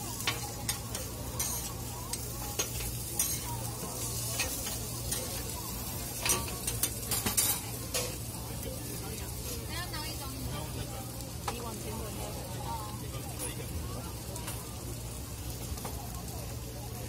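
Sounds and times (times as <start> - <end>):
hash browns sizzling on griddle: 0.0 - 17.0
metal spatulas scraping and tapping: 0.2 - 5.5, 6.1 - 8.2.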